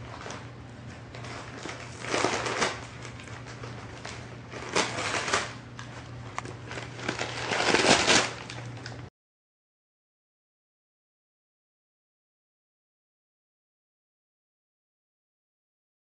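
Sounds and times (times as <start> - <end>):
pet crunching and chewing: 0.1 - 9.0.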